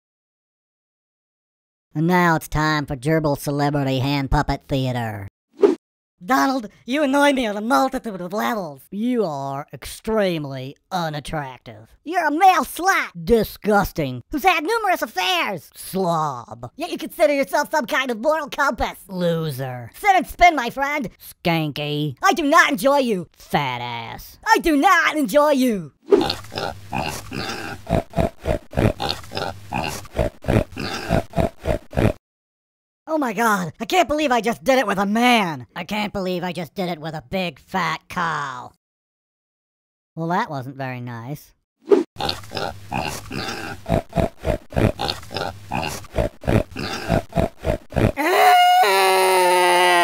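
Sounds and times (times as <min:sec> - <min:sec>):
cartoon pig-like grunts: 0:26.2 - 0:32.2, 0:42.2 - 0:50.0
long pitched cartoon cry: 0:48.2 - 0:50.0.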